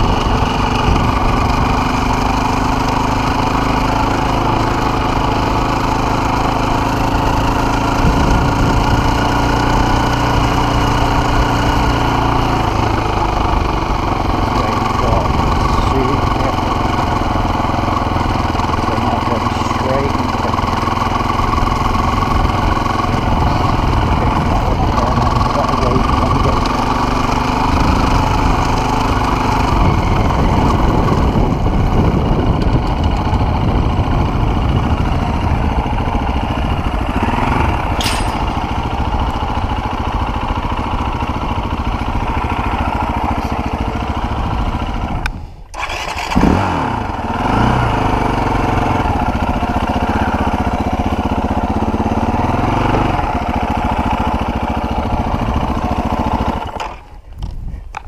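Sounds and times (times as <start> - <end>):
motorcycle engine revving: 0.0 - 57.2
field gate opening: 38.0 - 38.6.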